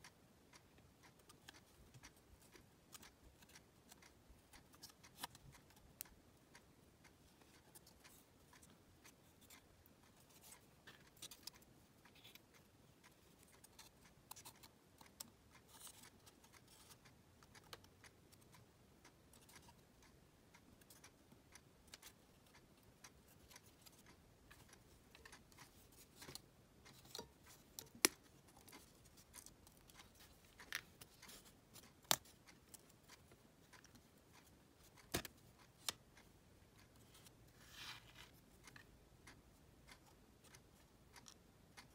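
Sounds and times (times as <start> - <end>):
soft scratching of plywood parts: 36.9 - 38.9.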